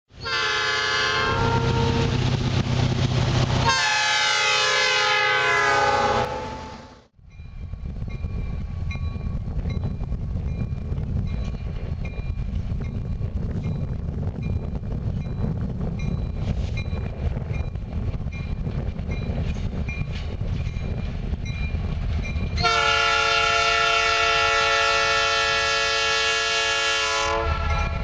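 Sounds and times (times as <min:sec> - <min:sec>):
distant freight train rumble: 0:00.1 - 0:28.0
locomotive air horn chord: 0:00.2 - 0:02.2, 0:03.6 - 0:07.1, 0:22.6 - 0:28.0.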